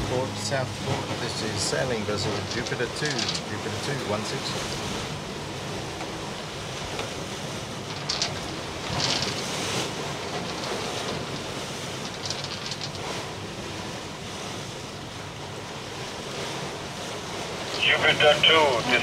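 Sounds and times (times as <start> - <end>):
breaking sea water: 0.0 - 15.6
hissing surges of water: 0.0 - 19.0.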